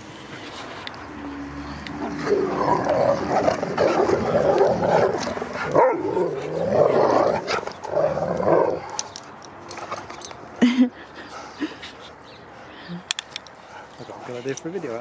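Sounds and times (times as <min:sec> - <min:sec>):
dogs howling and grumbling: 0:01.9 - 0:09.1.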